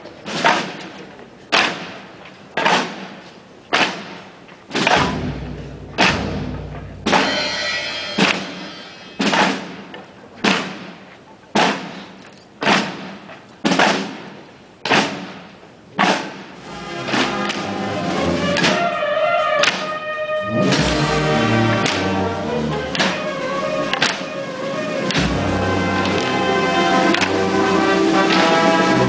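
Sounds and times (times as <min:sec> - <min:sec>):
procession drum beats: 0:04.7 - 0:09.8, 0:19.6 - 0:29.0
sustained band tones: 0:04.9 - 0:09.3, 0:16.6 - 0:29.0.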